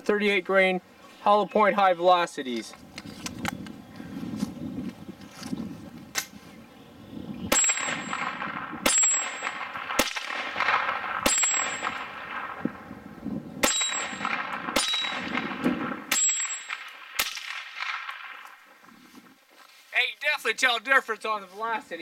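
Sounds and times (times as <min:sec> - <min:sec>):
pistol shots: 0:07.5 - 0:12.9, 0:13.6 - 0:18.6.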